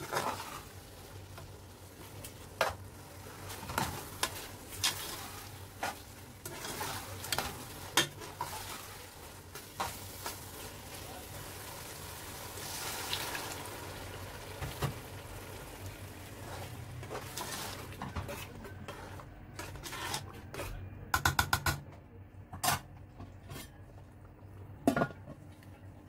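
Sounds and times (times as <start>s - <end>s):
sauce simmering: 0.0s - 18.1s.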